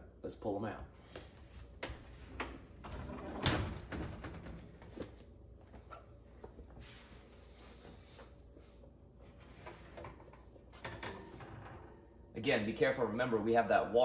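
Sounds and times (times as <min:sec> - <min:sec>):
oven door opening: 0:02.4 - 0:04.7.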